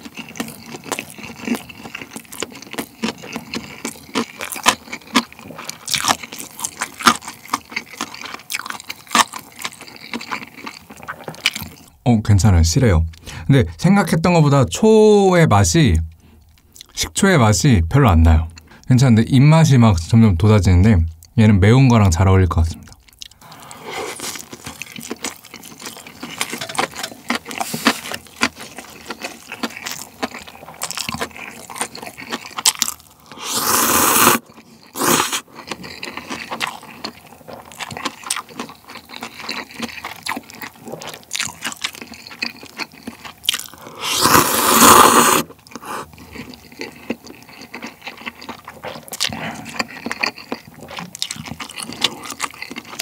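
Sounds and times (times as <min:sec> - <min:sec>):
close chewing: 0:00.0 - 0:12.0, 0:22.8 - 0:53.0
slurping noodles: 0:23.4 - 0:24.7, 0:33.2 - 0:35.5, 0:43.6 - 0:47.0.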